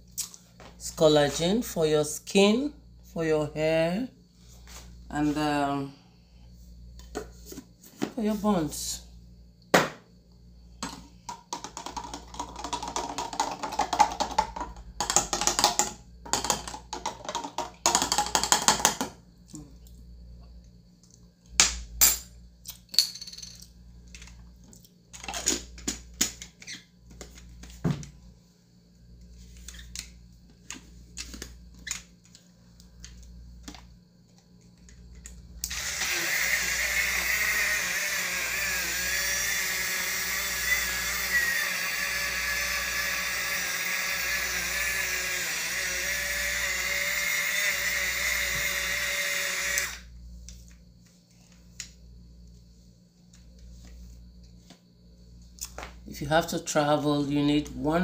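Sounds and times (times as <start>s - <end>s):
cup blender running: 10.8s - 19.1s, 35.6s - 50.1s.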